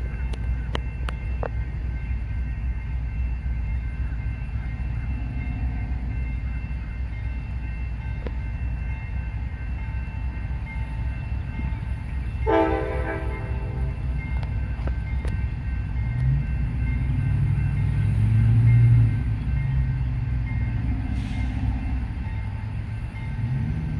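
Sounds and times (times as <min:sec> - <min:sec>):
diesel freight train rumble: 0:00.0 - 0:23.9
train chime horn blast: 0:12.4 - 0:14.5.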